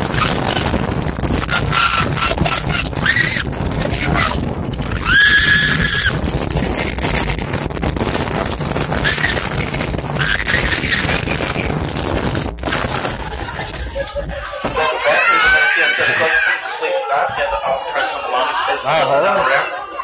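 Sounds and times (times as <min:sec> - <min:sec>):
wind on microphone: 0:00.0 - 0:14.8
ride car rattling and rumbling: 0:00.0 - 0:15.5
high squeals: 0:01.4 - 0:06.2.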